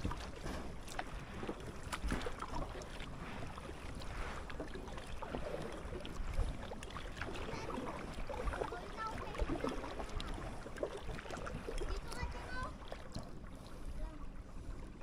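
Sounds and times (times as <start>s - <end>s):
paddle splashing in water: 0.0s - 15.0s.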